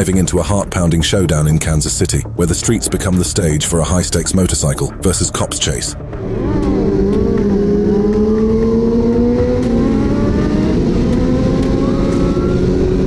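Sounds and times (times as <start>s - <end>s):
motorcycle engine running hard: 6.0s - 13.0s
wind and road noise: 6.0s - 13.0s.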